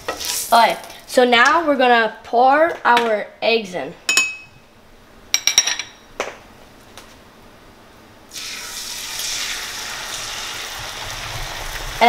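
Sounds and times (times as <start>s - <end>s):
eggs sizzling in a frying pan: 0.0s - 1.1s, 8.3s - 12.0s
dishware clinking: 4.1s - 4.6s, 5.4s - 6.0s.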